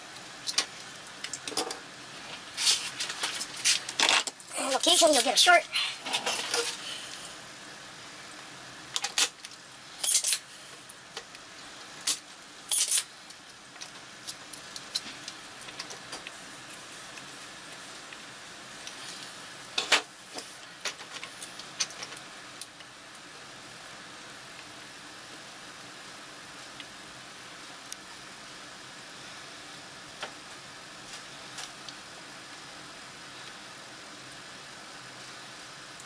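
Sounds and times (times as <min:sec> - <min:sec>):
faint steady hiss: 0:00.0 - 0:36.0.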